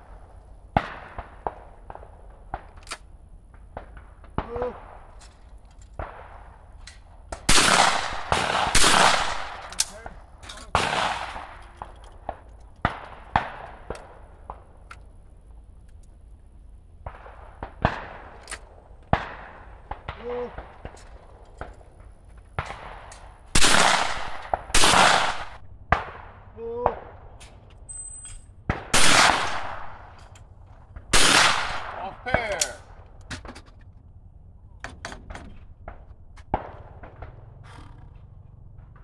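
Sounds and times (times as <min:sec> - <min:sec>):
faint distant gunshots: 0:00.0 - 0:02.8, 0:06.0 - 0:14.8, 0:17.0 - 0:27.4, 0:28.5 - 0:30.2, 0:30.8 - 0:33.1, 0:35.6 - 0:39.0
shotgun shots with ringing echo: 0:00.7 - 0:02.7, 0:07.4 - 0:11.6, 0:22.6 - 0:27.4, 0:28.5 - 0:30.2, 0:31.1 - 0:33.0.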